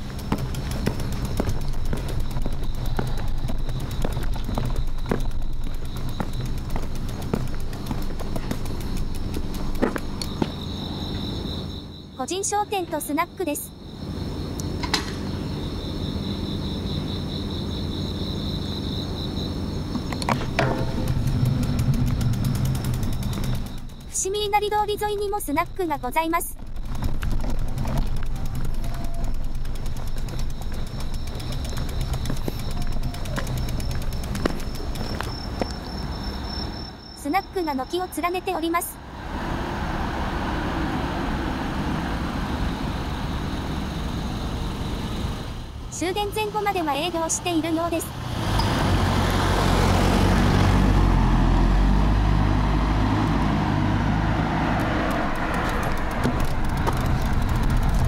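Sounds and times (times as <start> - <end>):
sharp clicks: 0.0 - 10.6, 20.0 - 36.4, 54.8 - 58.0
bicycle rolling: 0.0 - 11.8, 19.8 - 36.8, 46.0 - 58.0
high insect trill: 0.0 - 58.0
vehicle rumble and road noise: 0.0 - 58.0.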